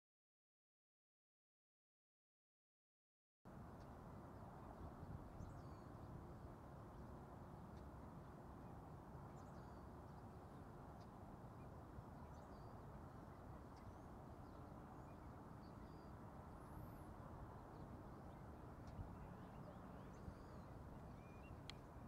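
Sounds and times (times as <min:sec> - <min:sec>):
faint distant low rumble: 0:03.5 - 0:22.0
faint bird chirps: 0:07.7 - 0:22.0.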